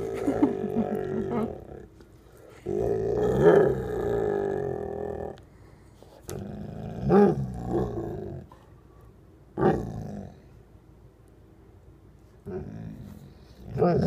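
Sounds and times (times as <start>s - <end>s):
dog growl-moaning: 0.0s - 1.9s, 2.6s - 5.4s, 6.3s - 8.5s, 9.6s - 10.4s, 12.4s - 14.0s.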